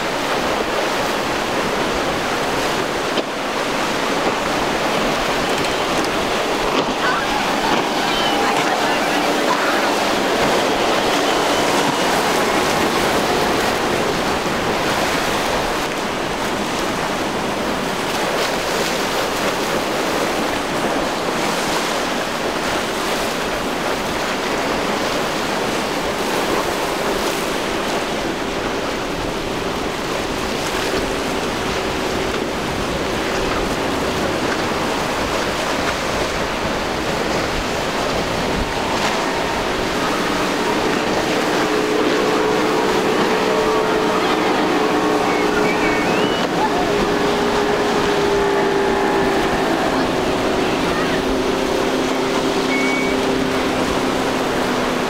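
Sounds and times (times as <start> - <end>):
outboard motors humming: 0.0 - 55.0
surf breaking: 0.0 - 55.0
wind: 0.0 - 55.0.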